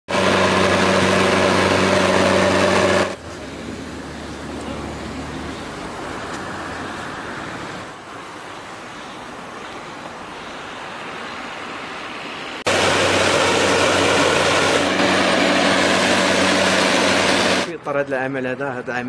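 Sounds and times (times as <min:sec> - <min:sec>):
truck engine droning: 0:00.1 - 0:07.9, 0:12.7 - 0:17.8
quiet outdoor noise: 0:03.1 - 0:12.8.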